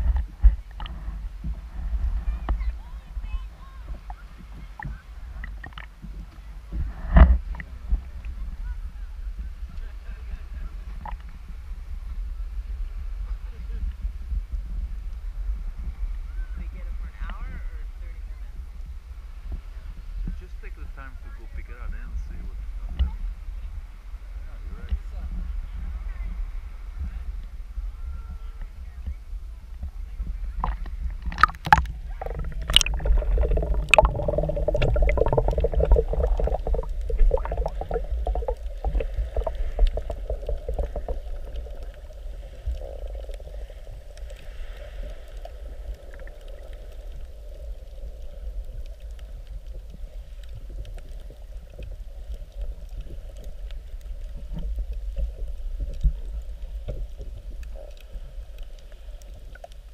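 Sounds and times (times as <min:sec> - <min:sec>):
faint steady hum: 0:00.0 - 0:59.9
underwater rumble and gurgle: 0:00.0 - 0:59.9
water splashing against camera housing: 0:30.6 - 0:43.5.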